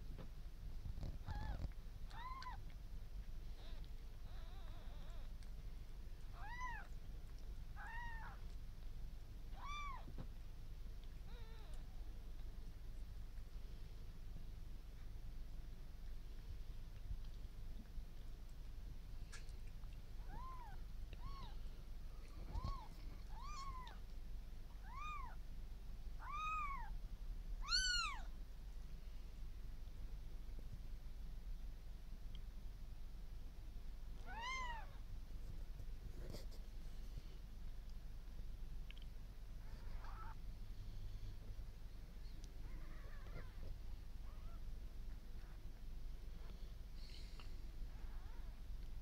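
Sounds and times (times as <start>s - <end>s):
kitten mewing: 1.1s - 2.6s.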